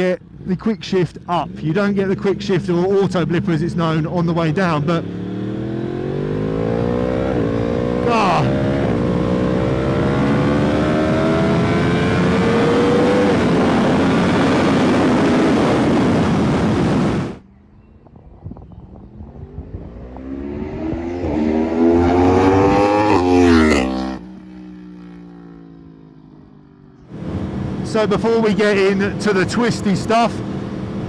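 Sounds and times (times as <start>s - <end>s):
motorcycle engine accelerating: 0.0s - 31.0s
motorcycle passing by: 1.4s - 29.4s
wind noise: 5.0s - 23.4s.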